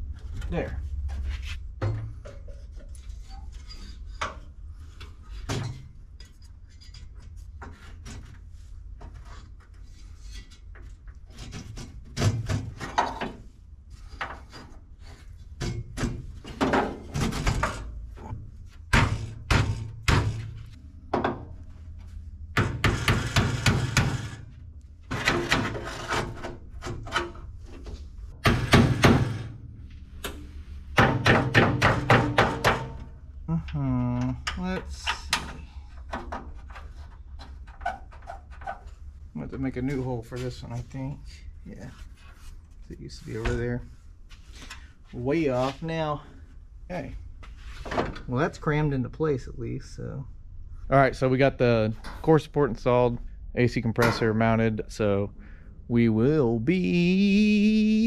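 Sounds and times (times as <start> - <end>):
metal knocks scrapes and rattles: 0.4 - 33.2.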